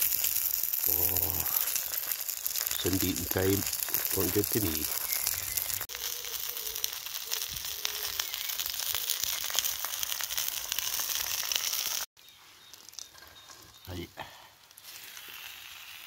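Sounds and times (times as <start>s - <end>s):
food sizzling in oil: 0.0s - 12.1s, 14.7s - 16.0s.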